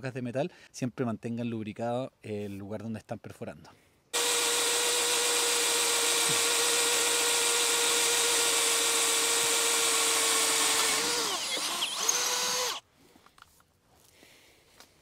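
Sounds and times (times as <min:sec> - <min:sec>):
cordless drill boring into metal: 0:04.2 - 0:12.8.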